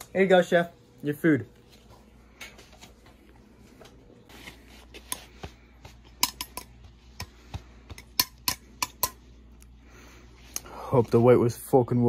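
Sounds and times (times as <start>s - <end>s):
cutlery clicking on plate: 6.2s - 6.7s.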